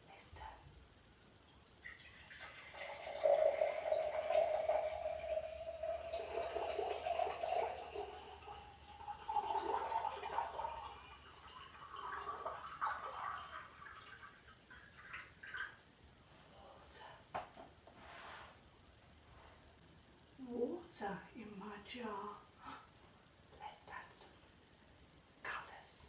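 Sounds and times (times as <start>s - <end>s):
water pouring into a glass jar: 1.4s - 15.8s.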